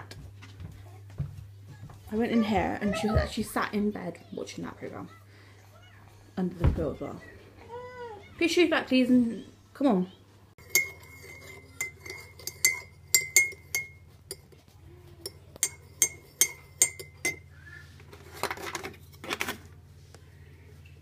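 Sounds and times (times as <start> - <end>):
teaspoon clinking in mug: 10.6 - 14.6, 15.2 - 17.5.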